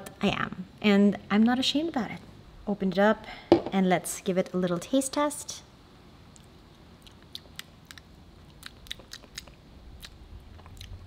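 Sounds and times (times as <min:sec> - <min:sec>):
wet lip smacks and tongue clicks: 0:06.3 - 0:11.0.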